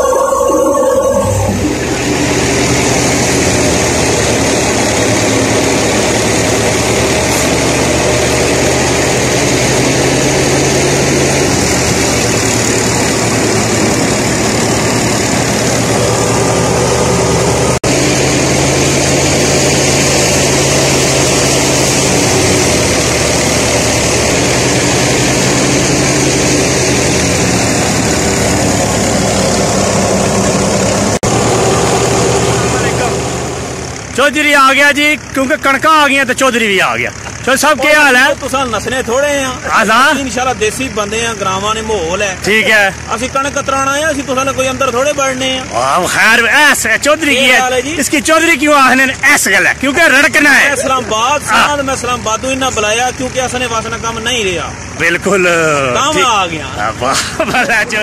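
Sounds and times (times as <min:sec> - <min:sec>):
thresher noise: 0:00.0 - 0:34.3
tractor engine running: 0:00.0 - 0:58.0.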